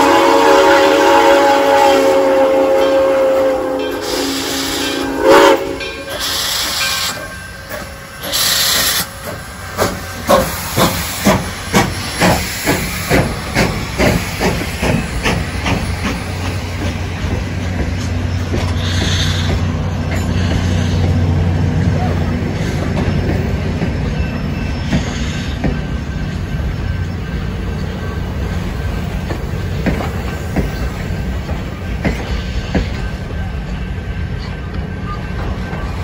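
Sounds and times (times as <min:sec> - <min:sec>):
steam whistle toot: 0:00.0 - 0:07.3
steam hiss: 0:00.0 - 0:21.8
diesel locomotive drone: 0:00.0 - 0:36.0
steam locomotive exhaust chuffs: 0:00.0 - 0:36.0.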